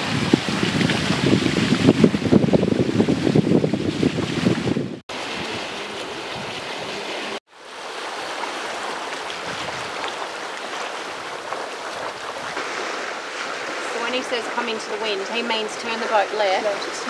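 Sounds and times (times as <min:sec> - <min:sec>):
water rushing along boat hull: 0:00.0 - 0:17.0.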